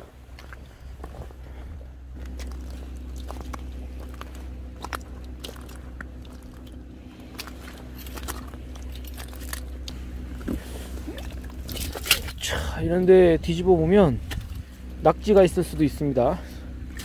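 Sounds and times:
steady low hum: 0:00.0 - 0:17.0
footsteps crunching on stones: 0:02.2 - 0:12.4.

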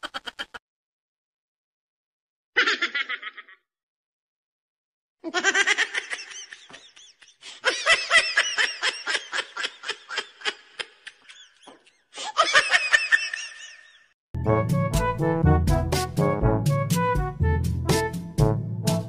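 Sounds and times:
person laughing: 0:00.0 - 0:00.6, 0:02.6 - 0:03.7, 0:05.2 - 0:14.1.

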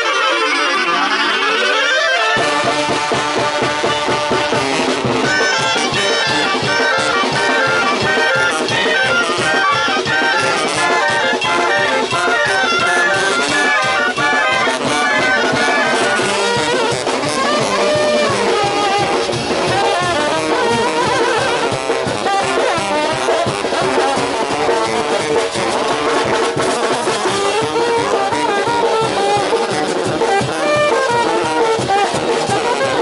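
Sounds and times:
clarinets playing quick melody: 0:00.0 - 0:33.0
trombones: 0:00.0 - 0:33.0
trumpets: 0:00.0 - 0:33.0
sousaphones: 0:04.6 - 0:22.4.

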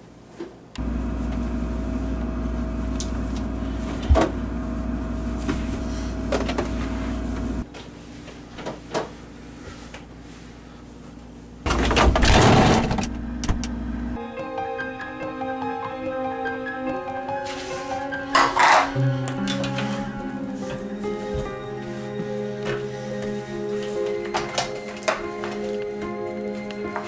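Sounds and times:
mechanical hum with low drone: 0:00.0 - 0:14.2.

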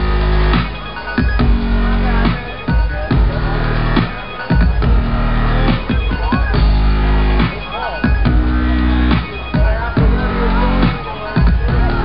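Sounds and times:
dubstep music with heavy bass: 0:00.0 - 0:12.0.

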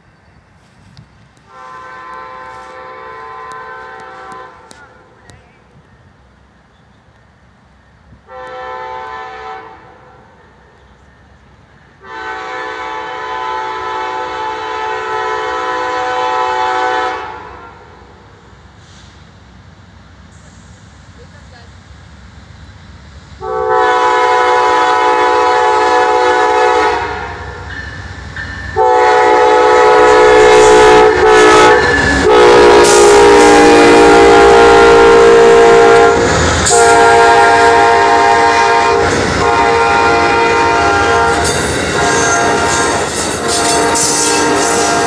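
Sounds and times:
train rumbling on rails: 0:00.0 - 0:45.0
train horn blasts: 0:01.5 - 0:05.2, 0:08.2 - 0:10.4, 0:12.0 - 0:18.1, 0:23.4 - 0:27.8, 0:28.7 - 0:45.0.

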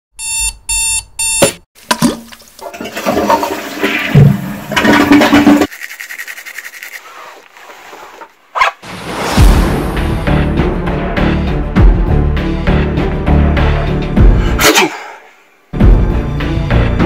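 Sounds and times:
alarm clock beeping: 0:00.2 - 0:01.6
toilet flushing: 0:01.8 - 0:05.7
toothbrush scrubbing teeth: 0:05.6 - 0:08.1.

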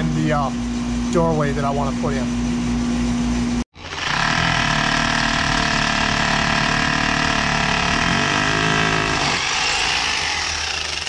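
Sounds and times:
hammer drill drilling into wall: 0:03.8 - 0:11.0.

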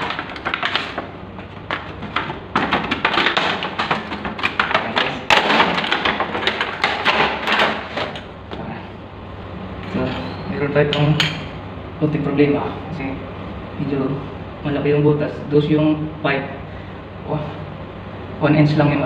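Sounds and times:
plastic bag crinkling: 0:00.0 - 0:07.2
taps and knocks: 0:00.0 - 0:07.8.

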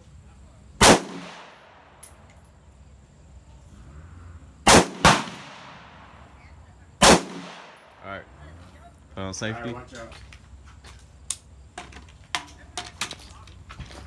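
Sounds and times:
rifle shots echoing: 0:00.8 - 0:02.1, 0:04.7 - 0:06.3, 0:07.0 - 0:08.0.

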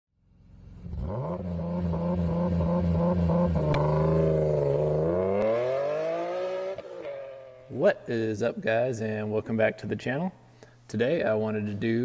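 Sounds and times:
car engine idling and revving: 0:00.2 - 0:07.6.

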